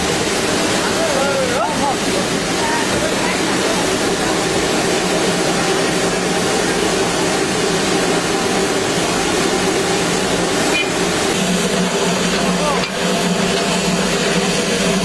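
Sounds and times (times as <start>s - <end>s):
steam hissing: 0.0s - 15.0s.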